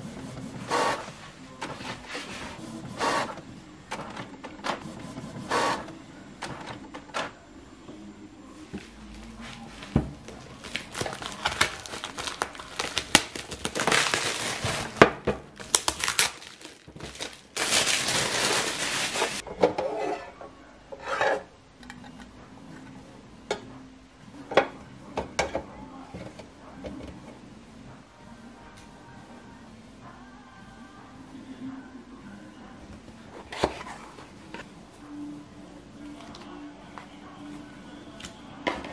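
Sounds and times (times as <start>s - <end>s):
packaging crinkling and rustling: 10.2s - 19.4s.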